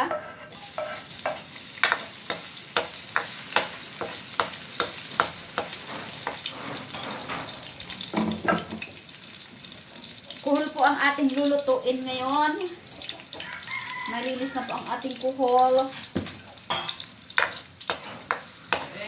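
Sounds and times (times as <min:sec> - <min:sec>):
ladle scraping and knocking wok: 0:00.0 - 0:08.9, 0:15.9 - 0:19.0
ginger sizzling in hot oil: 0:00.3 - 0:19.0.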